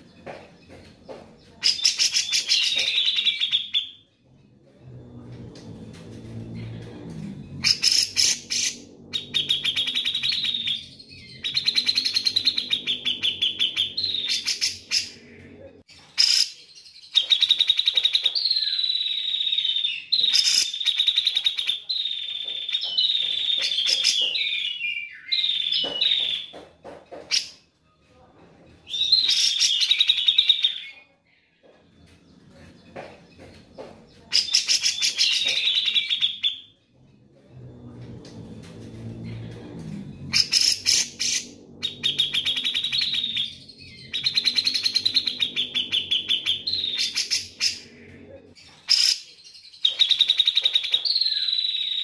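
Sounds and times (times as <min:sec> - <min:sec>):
bird singing chattering phrases: 0:00.0 - 0:04.0, 0:32.9 - 0:36.7, 0:40.4 - 0:52.0.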